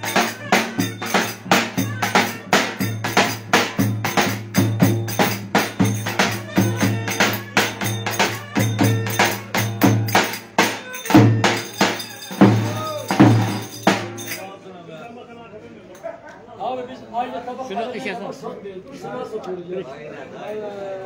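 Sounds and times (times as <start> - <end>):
large drum beaten with a stick: 0.0 - 14.3.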